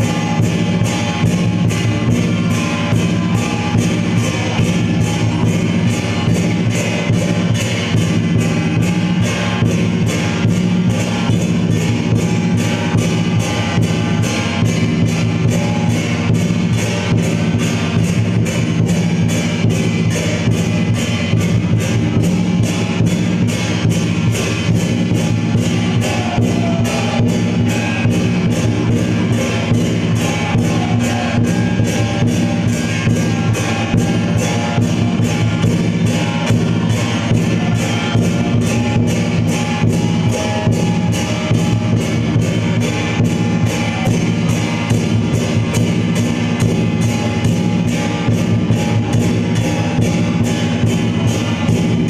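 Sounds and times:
loud music with drum beat: 0.0s - 52.0s.

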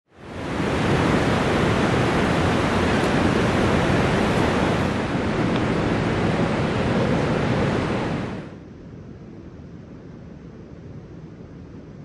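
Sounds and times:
loud steady rushing noise: 0.1s - 8.7s.

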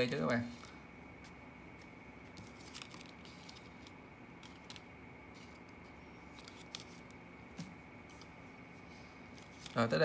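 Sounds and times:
low background hum: 0.0s - 10.0s
paper bill clicks and rustles: 1.8s - 8.4s, 9.3s - 10.0s.

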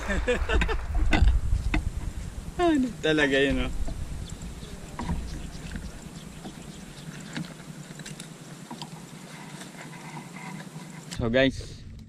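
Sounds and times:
wind rumble on microphone: 0.0s - 8.0s.

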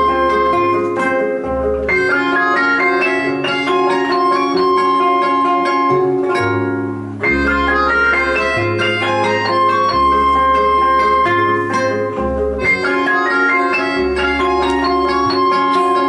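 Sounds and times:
acoustic guitars: 0.0s - 16.0s
bass line: 0.0s - 16.0s
keyboard: 0.0s - 16.0s
long held high note: 7.2s - 16.0s.

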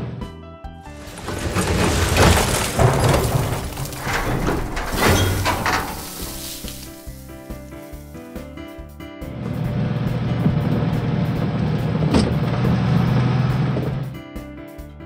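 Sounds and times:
falling rubbish clattering: 0.8s - 8.4s.

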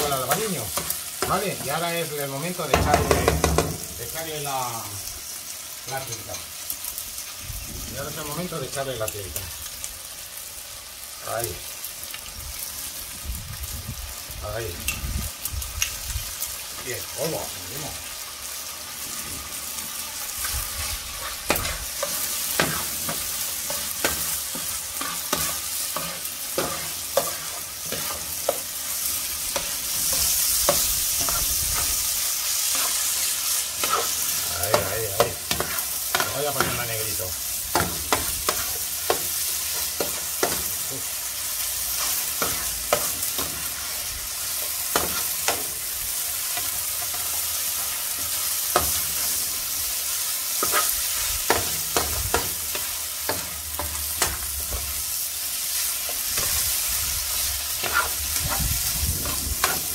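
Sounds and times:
food sizzling in a pan: 0.0s - 59.9s
spatula scraping and tapping pan: 21.2s - 32.0s, 32.6s - 36.8s, 50.6s - 54.9s, 57.8s - 59.9s.

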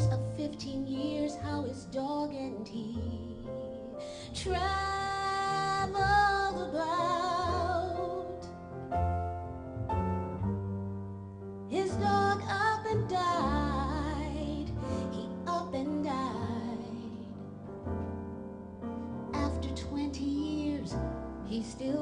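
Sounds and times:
upright double bass: 0.0s - 2.8s, 4.3s - 22.0s
woman singing into a microphone: 0.0s - 8.5s, 11.7s - 17.4s, 19.4s - 22.0s
piano: 0.0s - 22.0s.

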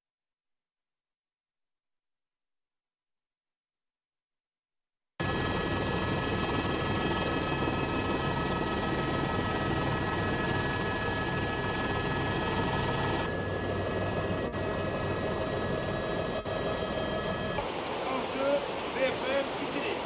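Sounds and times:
helicopter rotor and engine: 5.2s - 17.7s.

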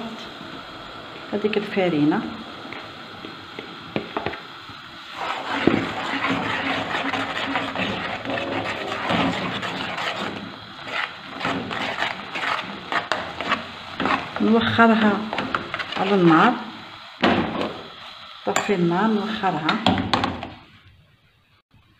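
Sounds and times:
spoon scraping in saucepan: 5.1s - 16.3s.

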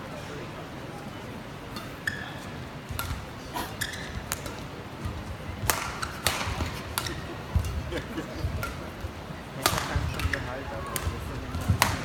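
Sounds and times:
arena crowd hum: 0.0s - 12.0s
shoe squeaks: 1.8s - 2.6s, 3.6s - 4.5s
rackets striking shuttlecock: 2.9s - 12.0s.

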